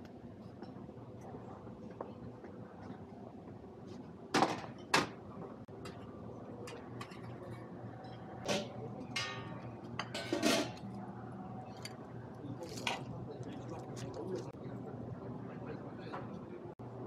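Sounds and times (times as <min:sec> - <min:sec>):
dishes and tongs clinking: 0:06.6 - 0:10.9.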